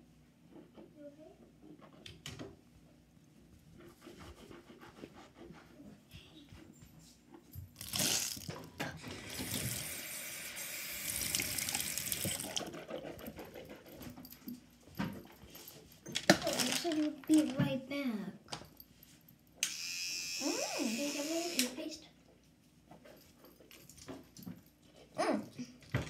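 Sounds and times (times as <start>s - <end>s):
faucet running into sink: 9.0s - 12.6s.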